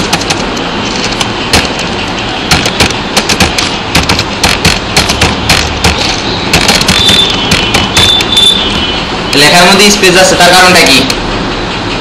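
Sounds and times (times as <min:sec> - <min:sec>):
computer keyboard typing: 0:00.0 - 0:09.5.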